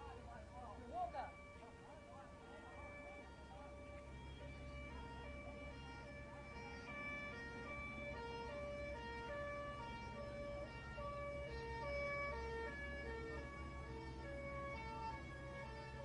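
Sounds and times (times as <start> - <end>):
emergency sirens: 0.0 - 16.0
low engine hum: 0.0 - 16.0.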